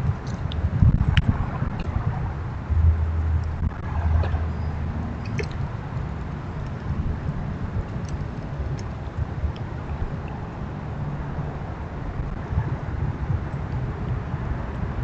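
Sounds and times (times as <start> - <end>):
low hum: 0.0 - 15.0
low outdoor rumble: 0.0 - 15.0
faint high clicks: 5.2 - 5.6.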